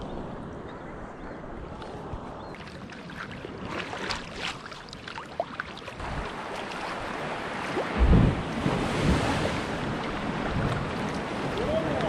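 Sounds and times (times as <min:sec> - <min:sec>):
wind and surf rushing: 0:00.0 - 0:04.4, 0:06.0 - 0:12.0
water splashing and dripping: 0:02.6 - 0:12.0
loud low wind buffet: 0:06.0 - 0:12.0.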